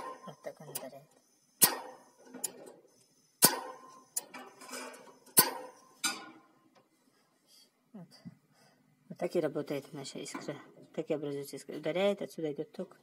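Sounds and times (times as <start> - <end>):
piezo igniter snapping: 1.6 - 2.6.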